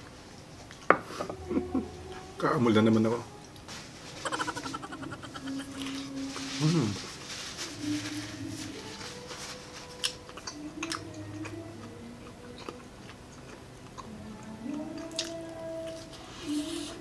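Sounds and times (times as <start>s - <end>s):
chewing crispy fried food: 4.2s - 6.7s, 9.1s - 16.8s.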